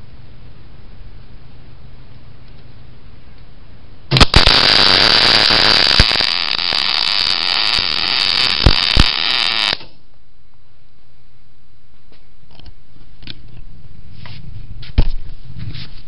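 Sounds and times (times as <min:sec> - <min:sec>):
sharp welding pops: 0:04.1 - 0:10.0
welder arc crackling: 0:04.1 - 0:10.0.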